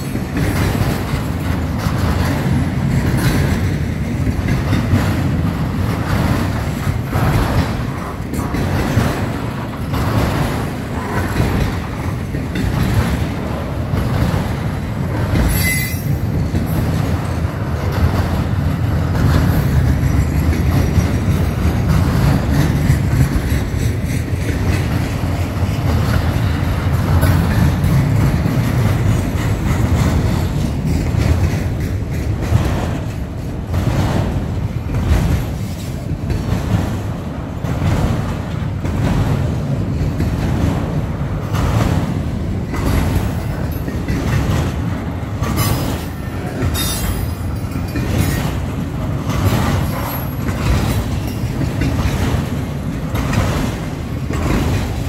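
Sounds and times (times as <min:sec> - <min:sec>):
rhythmic clickety-clack: 0:00.0 - 0:55.0
train wheels rumbling on rails: 0:00.0 - 0:55.0
high-pitched wheel squeals: 0:15.5 - 0:16.1.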